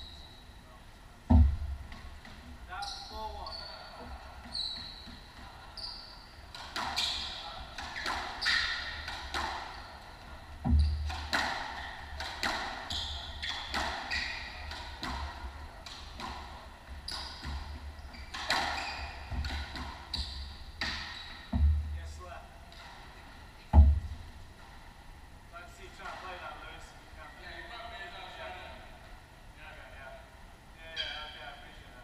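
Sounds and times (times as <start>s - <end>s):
heavy ball thud: 1.3s - 1.9s, 21.5s - 22.0s
squash ball smacking racket and walls: 1.3s - 2.6s, 6.4s - 22.0s, 22.6s - 24.8s
sneakers squeaking on hardwood: 2.2s - 21.9s.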